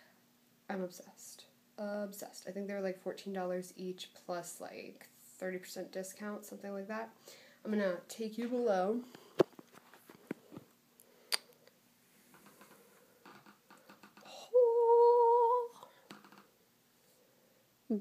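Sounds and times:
woman humming: 14.1s - 15.9s.

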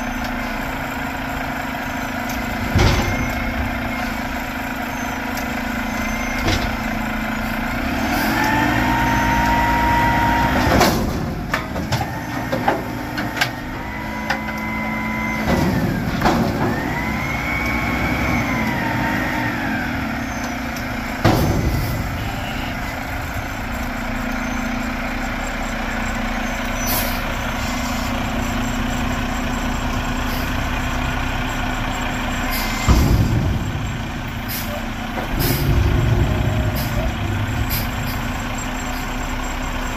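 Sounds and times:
diesel engine revving: 0.0s - 39.9s
hydraulic whine: 13.4s - 39.9s
metal bangs: 32.8s - 39.9s
loud burst: 35.3s - 39.2s.

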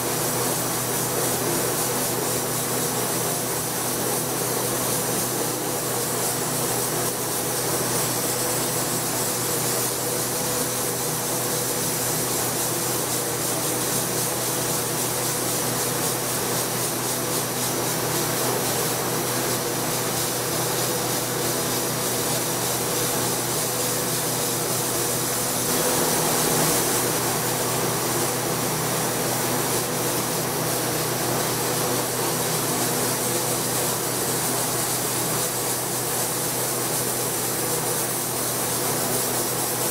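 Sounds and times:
sandblaster hissing: 5.0s - 29.5s.

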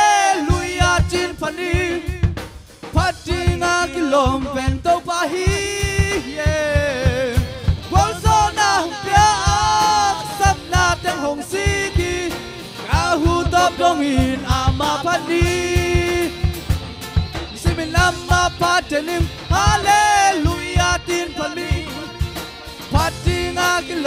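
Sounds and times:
accompaniment with steady beat: 0.0s - 24.0s
gospel group singing: 0.0s - 24.0s.

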